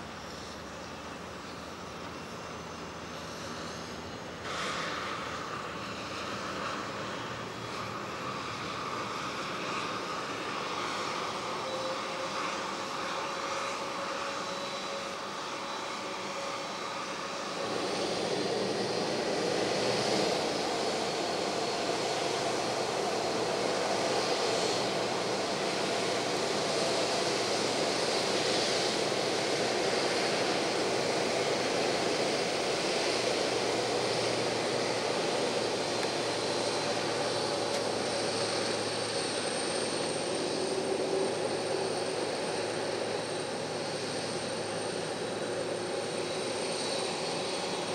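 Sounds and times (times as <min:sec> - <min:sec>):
jet engine rumble: 0:00.0 - 0:47.9.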